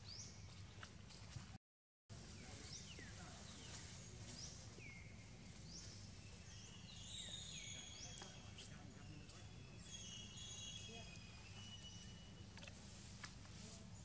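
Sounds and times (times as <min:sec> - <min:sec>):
faint bird chirps: 0:02.4 - 0:12.8.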